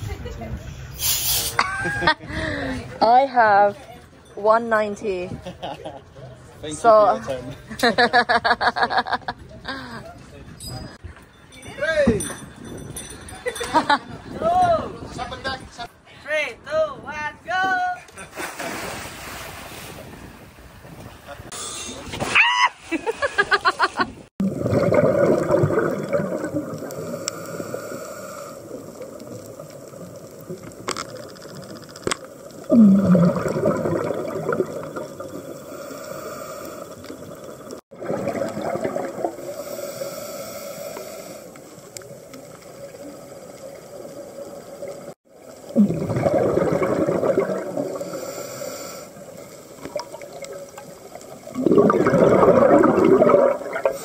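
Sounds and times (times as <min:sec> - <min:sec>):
scuba exhaust bubbles: 0:24.4 - 0:54.0.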